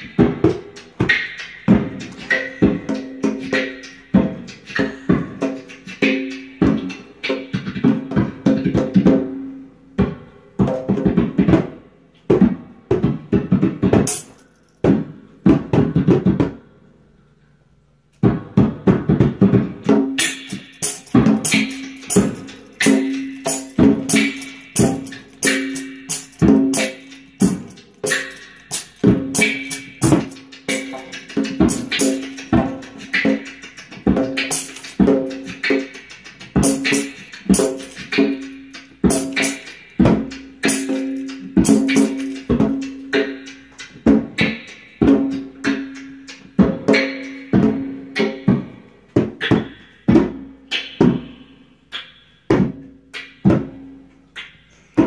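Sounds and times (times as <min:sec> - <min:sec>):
hi-hat ticks: 0:00.0 - 0:07.3, 0:20.2 - 0:47.6
beatboxing into a microphone: 0:03.9 - 0:09.0
djembe played by hand: 0:20.0 - 0:43.4.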